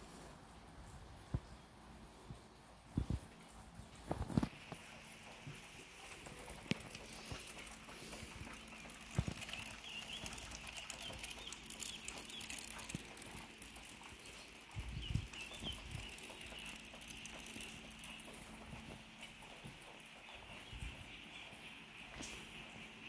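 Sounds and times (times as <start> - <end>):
footsteps on concrete floor: 17.6 - 22.6.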